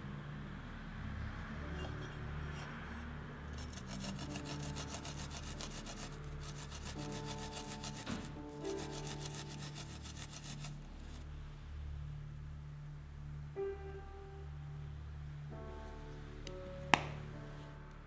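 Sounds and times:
soft background music: 0:00.0 - 0:18.0
garlic rasping on metal grater: 0:03.6 - 0:11.2.

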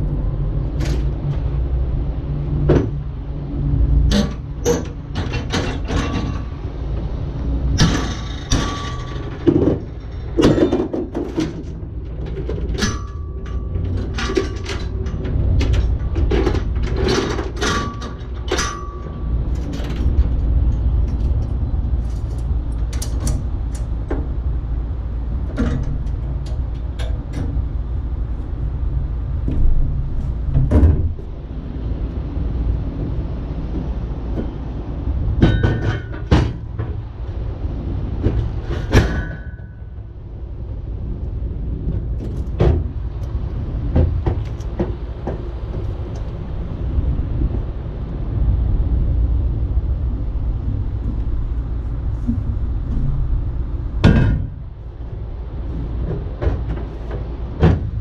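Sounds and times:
steady low rumble: 0:00.0 - 0:58.0
metal clanks and knocks: 0:02.5 - 0:47.8, 0:50.3 - 0:58.0.

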